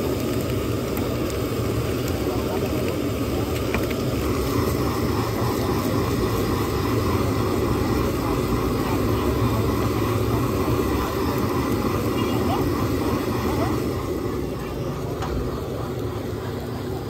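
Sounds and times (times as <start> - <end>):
gas stove burner: 0.0 - 17.0
omelette sizzling in butter: 0.0 - 17.0.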